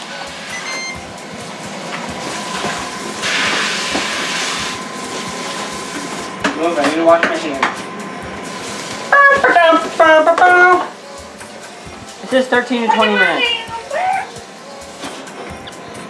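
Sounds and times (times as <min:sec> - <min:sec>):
short electronic beep: 0:00.4 - 0:01.1.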